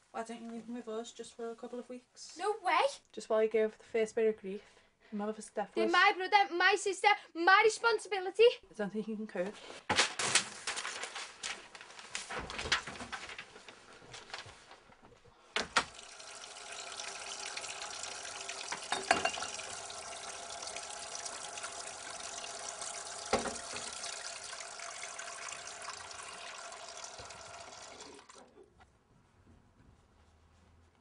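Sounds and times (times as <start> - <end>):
tap running into a sink: 15.6 - 28.3
crockery knocking: 18.8 - 19.6.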